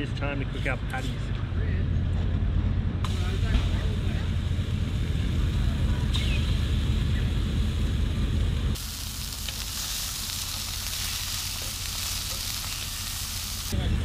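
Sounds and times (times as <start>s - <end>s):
low rumble: 1.6s - 14.0s
patties sizzling in a frying pan: 3.1s - 7.8s, 8.8s - 13.8s.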